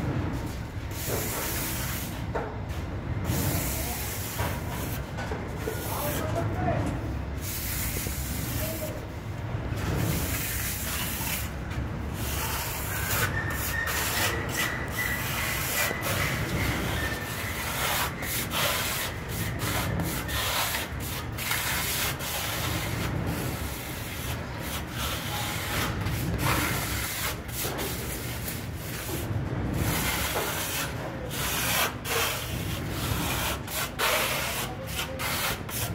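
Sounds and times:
plastering tool scraping plaster: 9.8 - 35.9.

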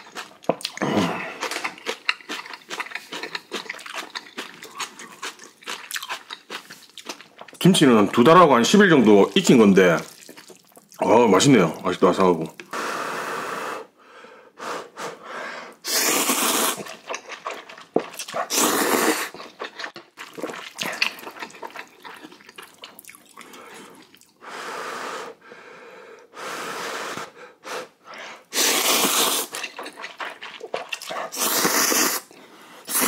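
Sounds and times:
person slurping noodles: 0.0 - 5.4, 15.8 - 22.8, 26.4 - 33.0
chewing and mouth clicks: 0.0 - 8.4, 9.2 - 11.1, 16.5 - 24.4, 28.8 - 33.0.

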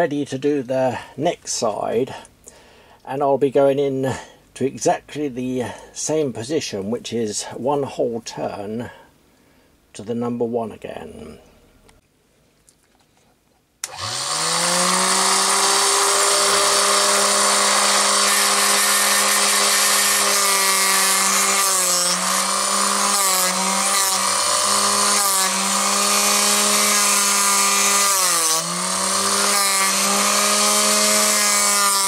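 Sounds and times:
drill bit scraping on grinding wheel: 13.8 - 32.0
grinder motor whine: 13.8 - 32.0.

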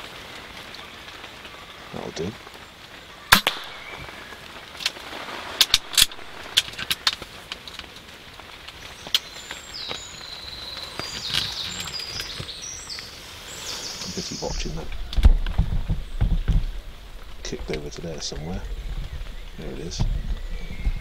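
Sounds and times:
birds chirping: 0.4 - 21.0
air rifle shot: 3.3 - 4.1.

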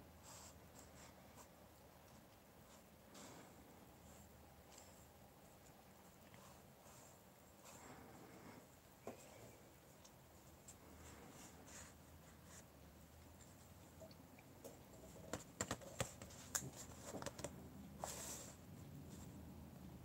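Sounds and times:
faint clicks and taps: 13.2 - 17.7.

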